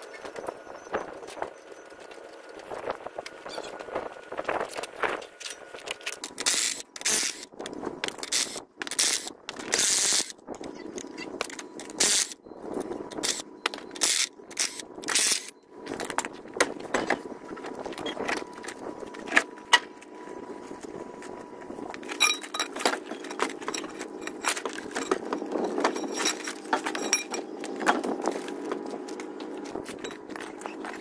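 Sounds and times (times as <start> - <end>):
metal clinks and knocks: 22.1 - 31.0.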